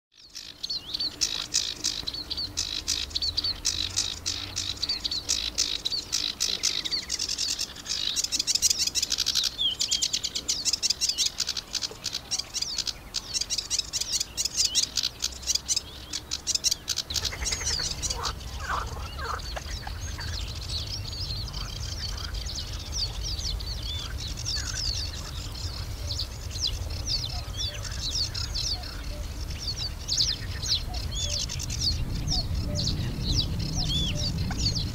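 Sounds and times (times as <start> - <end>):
small songbirds chirping: 0.1 - 34.9
wind rumble: 17.0 - 34.9.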